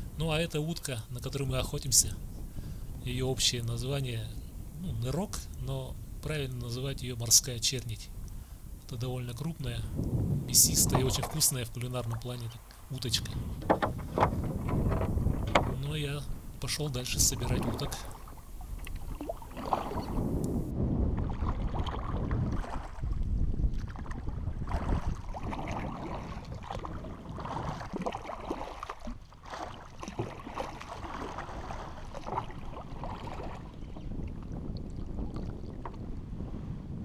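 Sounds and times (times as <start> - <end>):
water lapping at hull: 0.0 - 36.9
wind rumbling on microphone: 0.0 - 37.0
paddle splashing in water: 10.8 - 16.6, 17.2 - 36.0.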